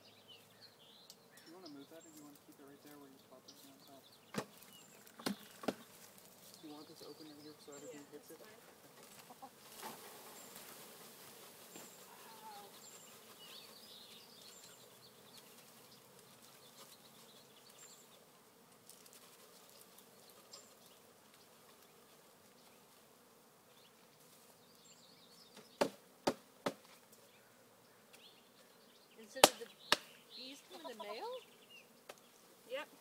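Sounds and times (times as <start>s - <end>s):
honeybees buzzing: 0.0s - 33.0s.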